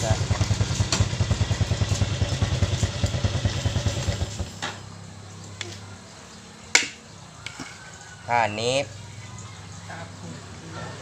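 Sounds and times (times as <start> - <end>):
motorcycle engine idling: 0.0 - 4.6.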